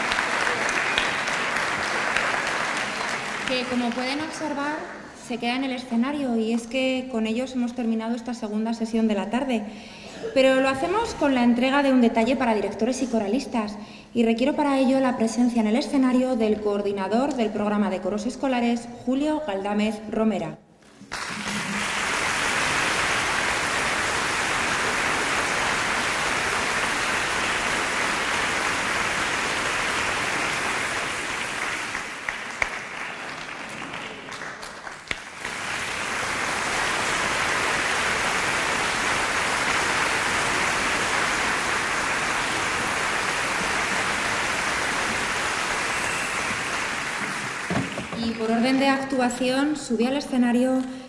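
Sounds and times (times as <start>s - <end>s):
audience applauding: 0.0s - 5.1s, 21.0s - 48.4s.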